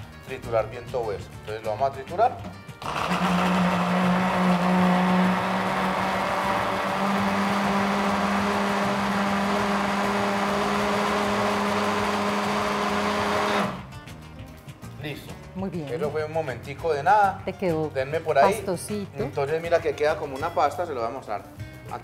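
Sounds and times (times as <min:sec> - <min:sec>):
electric chopper motor whirring: 0:02.8 - 0:13.9.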